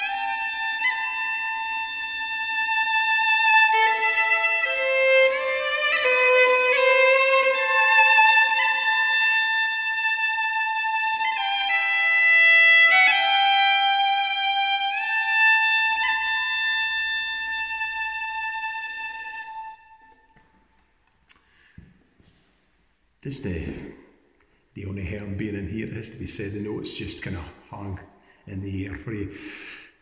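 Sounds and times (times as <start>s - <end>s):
solo fiddle playing slow tune: 0.0s - 20.6s.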